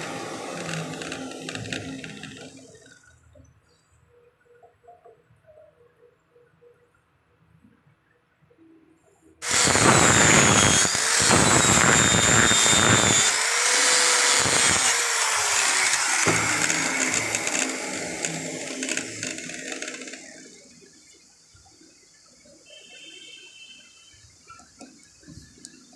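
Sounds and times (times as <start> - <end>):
angle grinder grinding steel: 0.0 - 3.0, 9.4 - 20.9.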